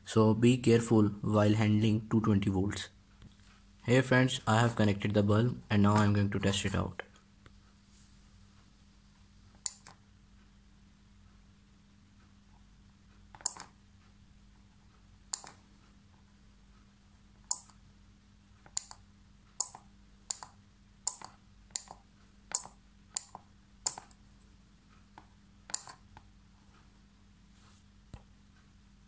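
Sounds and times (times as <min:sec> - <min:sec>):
push button and relay clicks: 0:13.4 - 0:13.7, 0:25.7 - 0:26.0.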